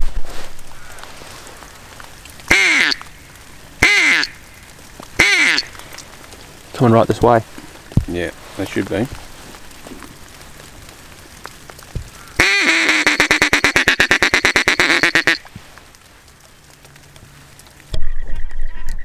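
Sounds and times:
duck call quacking notes: 2.5s - 3.0s, 3.8s - 4.4s, 5.2s - 5.7s, 12.4s - 15.4s.

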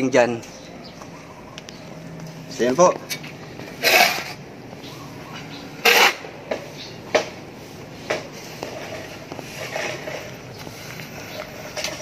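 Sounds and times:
metal shovel scraping sawdust: 3.7s - 4.4s.

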